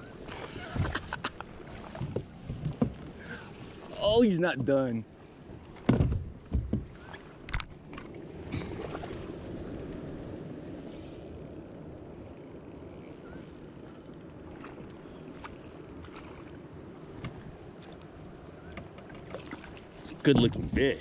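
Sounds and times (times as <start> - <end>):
fishing reel whirring: 1.4 - 5.8, 10.2 - 19.0.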